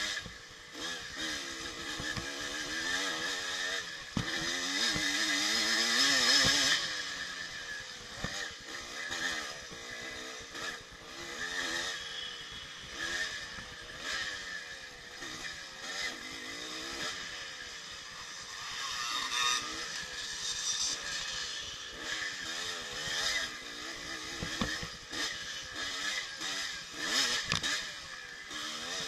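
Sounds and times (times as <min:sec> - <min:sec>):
two-stroke motorcycle engine revving: 0:00.0 - 0:29.0.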